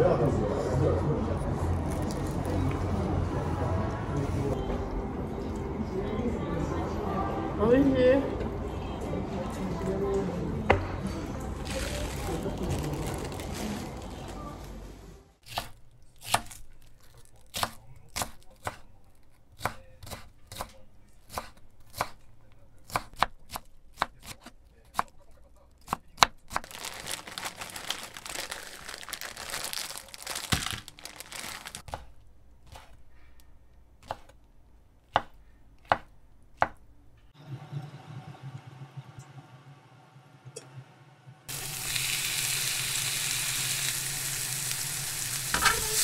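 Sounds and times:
knife chopping on cutting board: 0:19.6 - 0:22.2, 0:22.9 - 0:25.1, 0:32.7 - 0:33.0, 0:34.0 - 0:34.4, 0:35.1 - 0:36.8.

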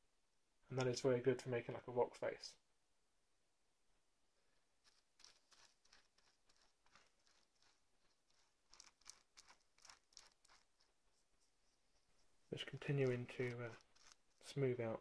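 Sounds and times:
fingers rubbing wet plaster cloth: 0:04.8 - 0:14.7.

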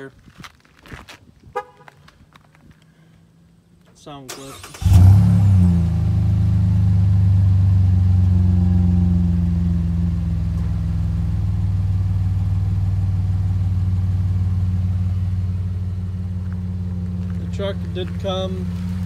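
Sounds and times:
truck engine idling: 0:06.1 - 0:19.0.

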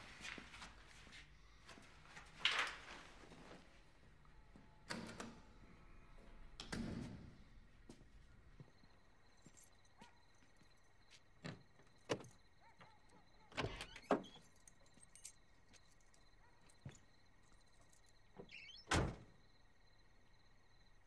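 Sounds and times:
car door squeak: 0:13.5 - 0:14.4, 0:18.4 - 0:19.2.

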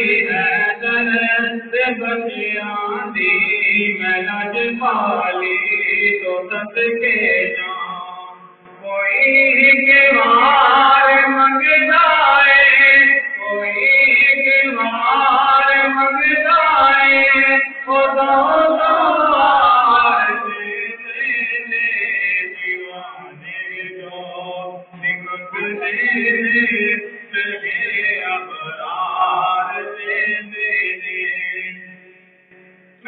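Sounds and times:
man singing into a microphone: 0:00.0 - 0:32.1.

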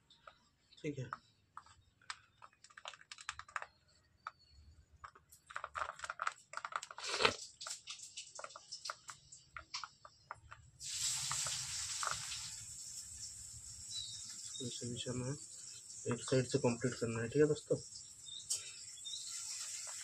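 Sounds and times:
steady hiss: 0:10.8 - 0:20.0.

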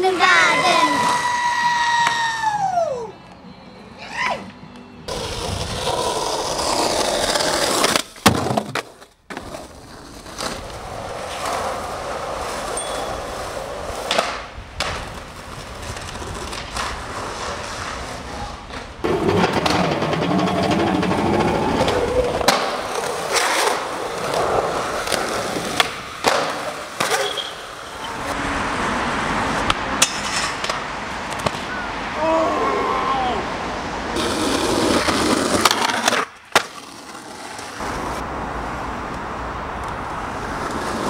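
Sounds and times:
skateboard wheels rolling on concrete: 0:00.0 - 0:41.0
skateboards cracking and clattering: 0:05.1 - 0:28.0, 0:29.5 - 0:31.7, 0:34.2 - 0:38.2.

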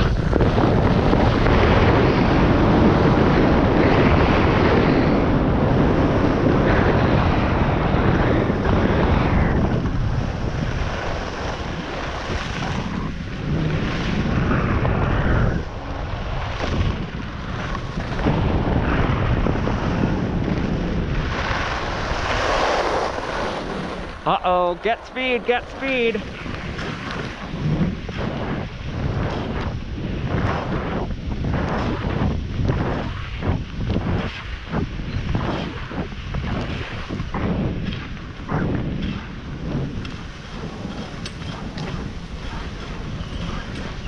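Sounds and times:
wind rushing over microphone: 0:00.0 - 0:44.0
ski edges hissing on snow: 0:21.4 - 0:24.2.

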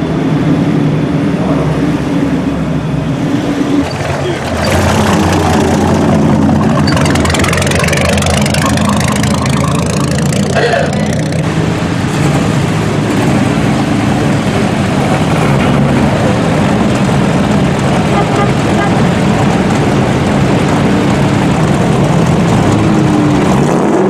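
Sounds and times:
sports car engines at low revs: 0:00.2 - 0:24.0.

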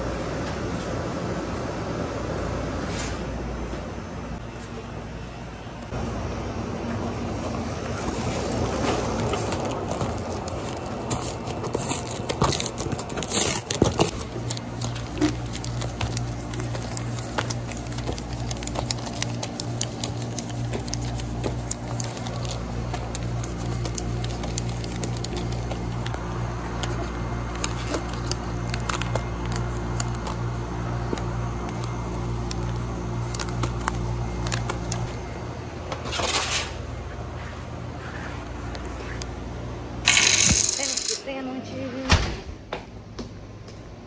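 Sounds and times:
low hum of kitchen equipment: 0:00.0 - 0:44.0
plastic wrap crinkling: 0:07.9 - 0:30.4, 0:31.7 - 0:35.1.

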